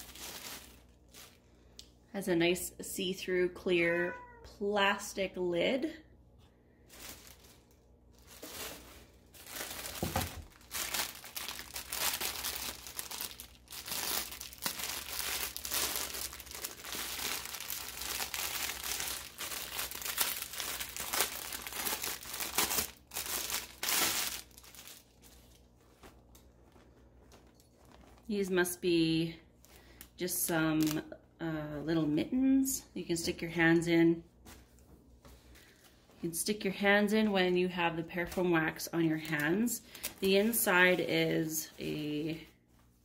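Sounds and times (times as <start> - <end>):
plastic wrap crinkling: 0.0 - 1.6, 6.8 - 28.8, 30.8 - 31.1, 38.2 - 43.0.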